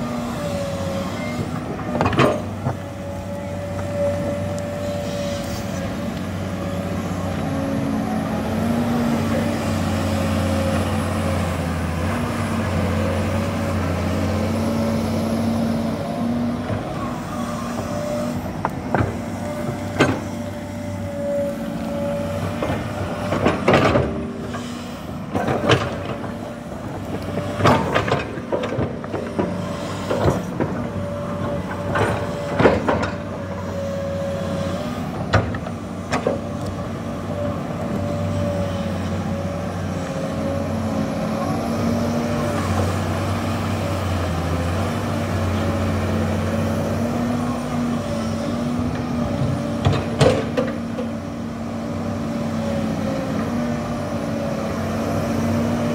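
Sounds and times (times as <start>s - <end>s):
excavator diesel engine running: 0.0s - 55.9s
metal clanks and knocks: 49.8s - 51.1s.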